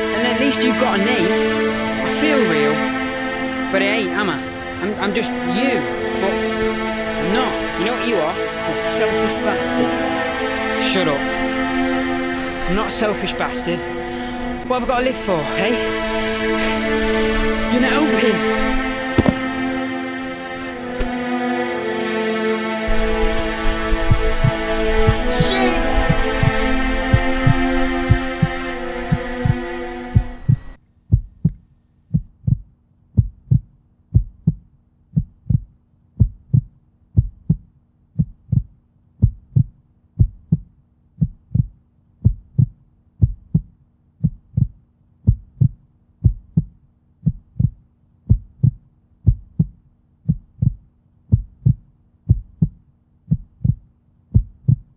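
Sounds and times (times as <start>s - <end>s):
sustained drone: 0.0s - 30.8s
heartbeat thumps: 19.1s - 19.6s, 24.0s - 54.9s.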